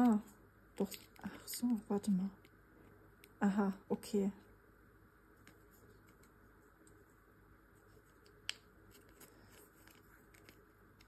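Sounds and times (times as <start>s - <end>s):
plastic being handled: 5.4s - 11.0s.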